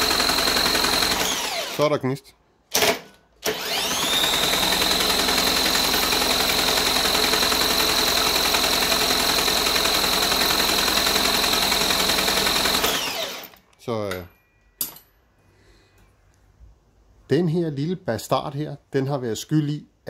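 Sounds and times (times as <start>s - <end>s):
cordless drill whining: 0.0s - 1.9s, 2.7s - 13.6s.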